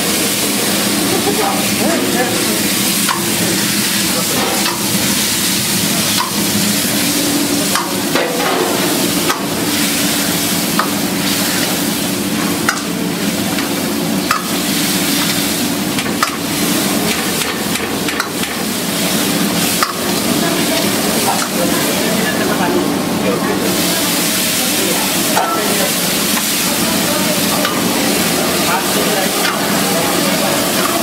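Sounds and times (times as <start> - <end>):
steady sizzle: 0.0 - 31.0
ladle clicking against pan: 4.4 - 5.2, 6.1 - 6.5, 7.7 - 9.6, 12.4 - 14.6, 19.7 - 20.1.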